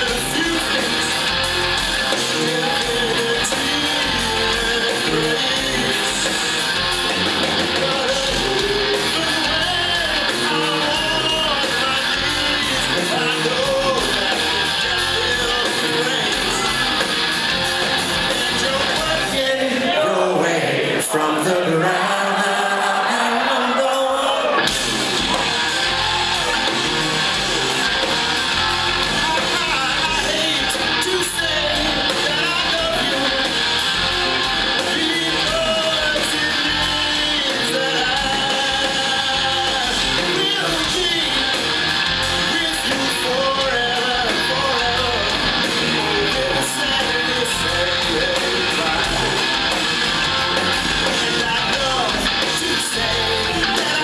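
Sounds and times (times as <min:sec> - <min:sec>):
lap slide guitar: 0:00.0 - 0:19.3, 0:24.6 - 0:54.0
bass guitar: 0:00.0 - 0:19.6, 0:24.4 - 0:54.0
electric guitar: 0:00.0 - 0:20.0, 0:24.4 - 0:54.0
drums: 0:00.0 - 0:20.3, 0:20.9 - 0:54.0
person singing: 0:02.1 - 0:17.1, 0:17.8 - 0:49.6, 0:50.8 - 0:54.0.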